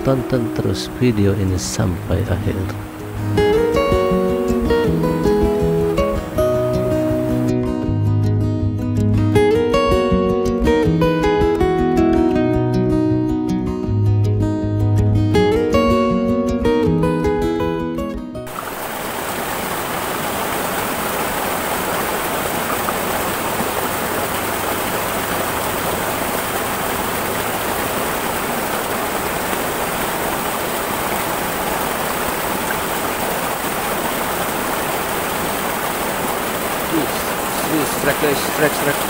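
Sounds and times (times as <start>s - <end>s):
river rushing over stones: 1.6s - 4.9s, 18.5s - 39.0s.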